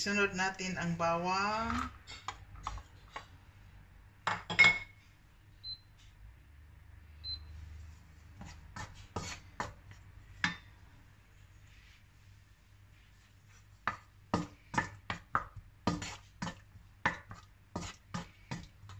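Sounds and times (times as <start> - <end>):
wooden spatula knocking on a wok: 13.8 - 18.9.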